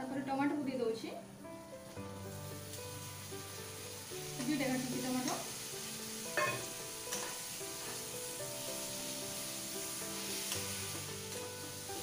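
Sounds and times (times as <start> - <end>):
food sizzling in hot oil: 0.9 - 12.0
metal spatula scraping pan: 6.3 - 8.0.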